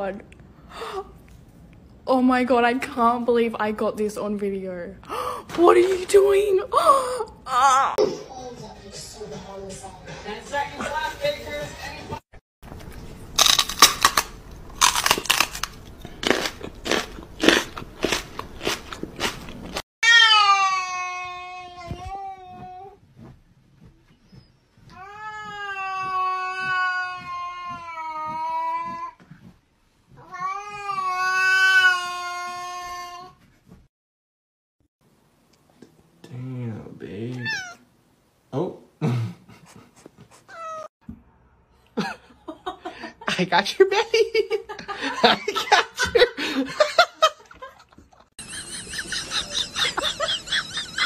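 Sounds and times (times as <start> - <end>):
cat yowling: 37.4 - 37.8, 40.5 - 40.9
person laughing: 39.0 - 40.3, 44.1 - 51.0.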